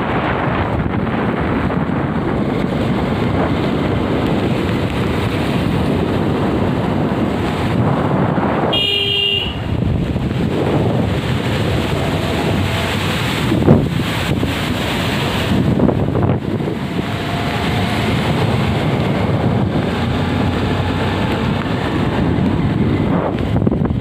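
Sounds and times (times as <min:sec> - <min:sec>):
wind noise on microphone: 0:00.0 - 0:24.0
vehicle horn honking: 0:08.7 - 0:09.8.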